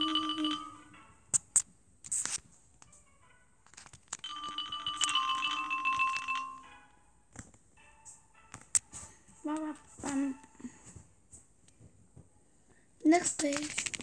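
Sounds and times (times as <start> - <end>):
chiming musical jingles: 0.0 - 1.2, 4.2 - 7.2.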